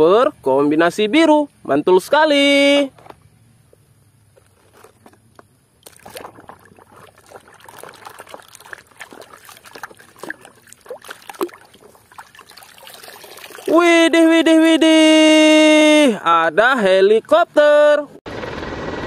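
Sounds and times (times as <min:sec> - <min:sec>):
water sloshing in plastic basin: 0:04.4 - 0:13.8.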